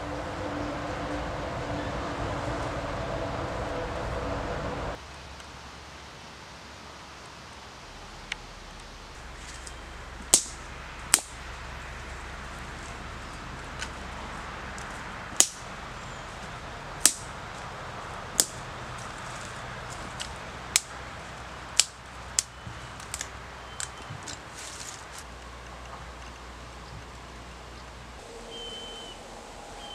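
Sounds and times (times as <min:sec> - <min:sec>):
steady outdoor hiss: 0:00.0 - 0:29.9
kindling sticks snapping: 0:08.2 - 0:27.2.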